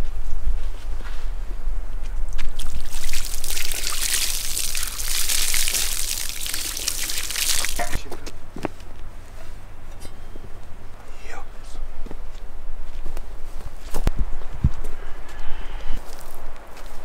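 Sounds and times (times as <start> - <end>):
water pouring from watering can: 2.6 - 8.0.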